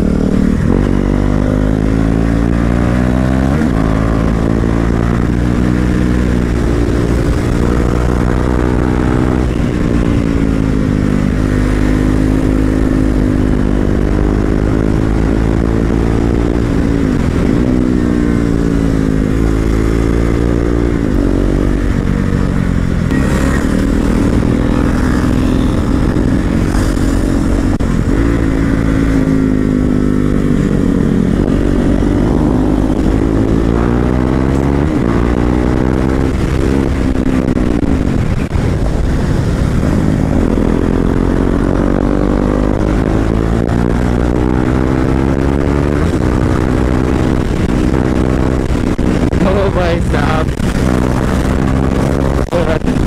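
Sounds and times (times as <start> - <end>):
motorcycle engine accelerating: 0.0 - 53.0.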